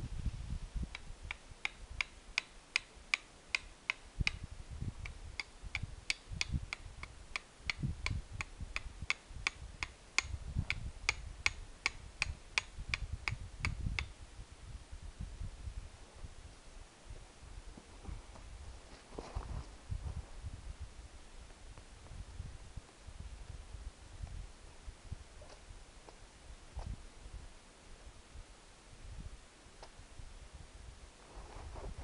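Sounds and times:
steel striker clicking on flint: 0.9s - 4.4s, 5.0s - 14.1s.

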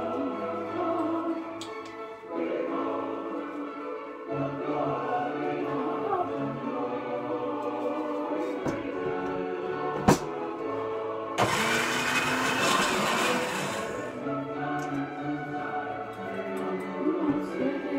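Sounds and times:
choral music: 0.0s - 17.9s
countertop blender running: 11.4s - 14.2s.

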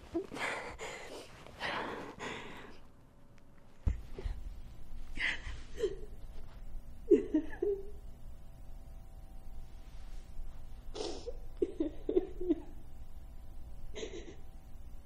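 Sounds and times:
low room hum: 0.0s - 15.0s
person breathing: 0.3s - 2.9s.

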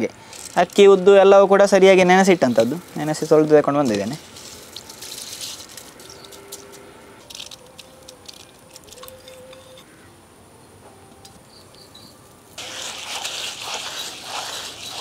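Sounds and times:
falling grains pattering: 0.0s - 9.1s, 12.6s - 15.0s
stone grinder gritty scraping: 12.6s - 15.0s.

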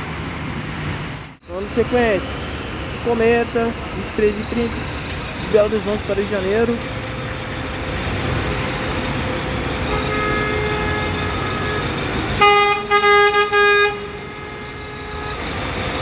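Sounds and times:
traffic noise: 0.0s - 16.0s
loud horn blasts: 6.9s - 15.8s.

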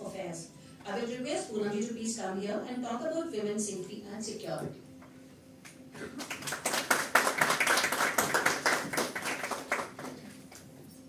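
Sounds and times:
audience clapping: 6.0s - 10.7s.

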